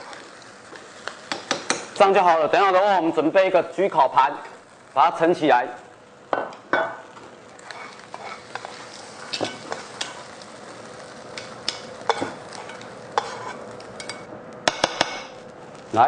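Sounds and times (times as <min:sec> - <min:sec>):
rice sizzling in pan: 0:00.0 - 0:16.0
metal spoon scraping frying pan: 0:07.6 - 0:10.4, 0:11.4 - 0:15.4.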